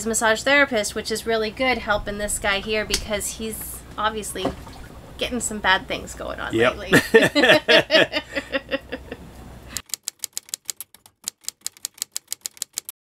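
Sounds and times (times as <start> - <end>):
person laughing: 6.9 - 9.3
typewriter key clicks: 9.8 - 12.9.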